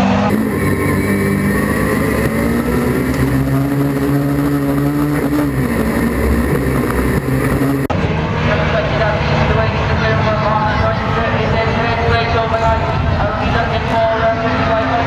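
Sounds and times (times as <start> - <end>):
racing car engine revving: 0.0 - 15.0.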